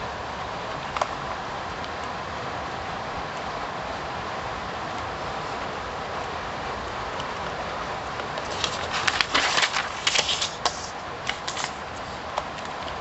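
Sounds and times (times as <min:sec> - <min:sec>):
steady background hiss: 0:00.0 - 0:13.0
paper rustling and crackling: 0:08.3 - 0:12.2.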